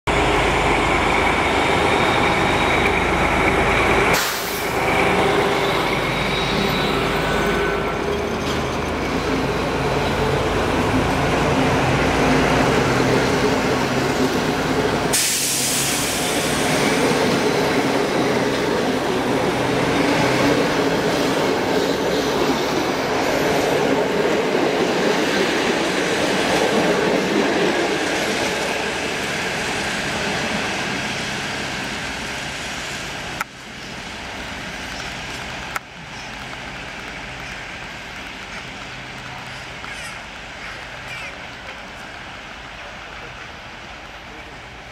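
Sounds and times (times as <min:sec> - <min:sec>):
diesel locomotive engine rumble: 0:00.1 - 0:44.9
wheel squeal: 0:04.8 - 0:09.3
train wheels clattering on rail joints: 0:07.4 - 0:09.5.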